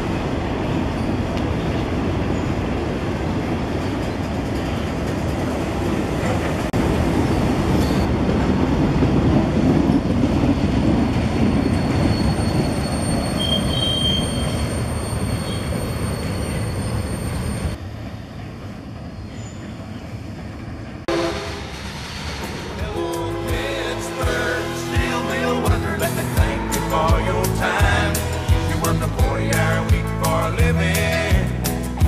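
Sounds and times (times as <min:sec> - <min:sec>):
train wheels rumbling on rail: 0:00.0 - 0:32.0
high wheel squeal: 0:11.4 - 0:17.8.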